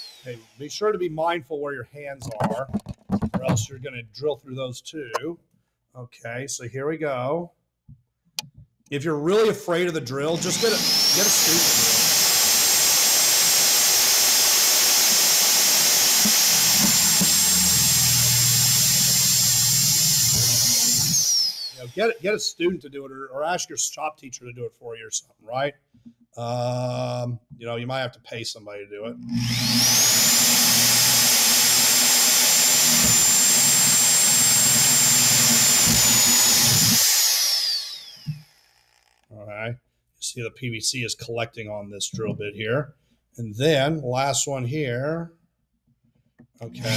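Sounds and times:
drill press motor whirring: 0.0 - 0.6, 10.3 - 22.2, 29.2 - 39.2
drill bit grinding into pipe: 0.0 - 0.9, 10.2 - 22.5, 29.2 - 39.2, 46.7 - 46.9.

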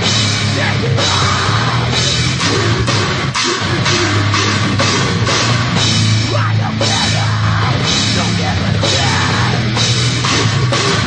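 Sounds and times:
heavy metal band playing: 0.0 - 11.0
cymbals crashing: 2.0 - 6.2, 9.8 - 11.0.

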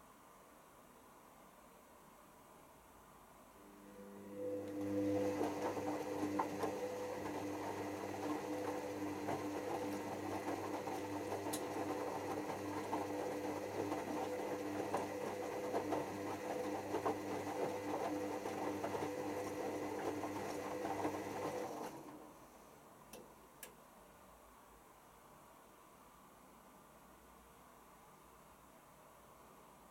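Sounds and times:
washing machine motor hum: 3.6 - 22.4.

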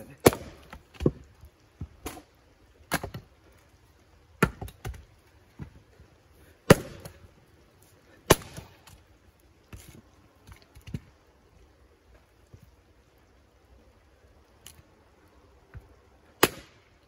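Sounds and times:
axe splitting firewood: 0.0 - 3.3, 4.3 - 5.8, 6.6 - 7.2, 8.2 - 9.0, 16.4 - 16.8.

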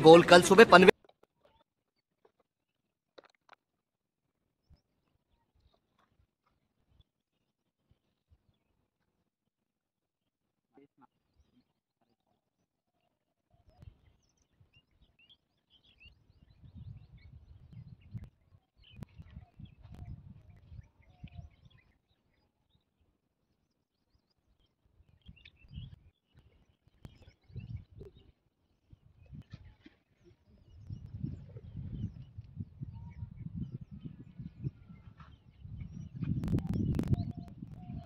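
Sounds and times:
small birds chirping: 13.6 - 38.0
wind rumbling on microphone: 16.0 - 22.0, 25.0 - 38.0.

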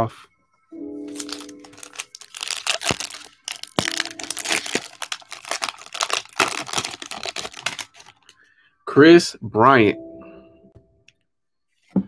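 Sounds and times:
foil wrapper crinkling and tearing: 1.1 - 8.3.

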